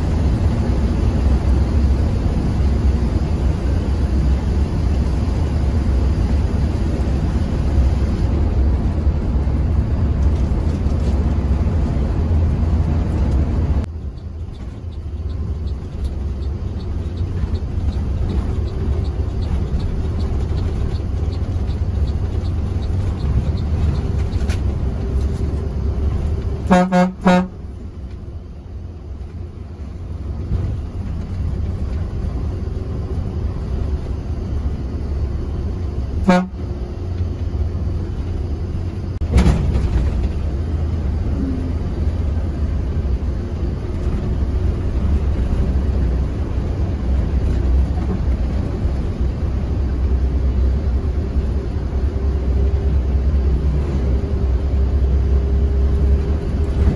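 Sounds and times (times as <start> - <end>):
bus engine and road noise: 0.0 - 56.9
vehicle horn toots: 26.6 - 27.6, 36.2 - 36.7.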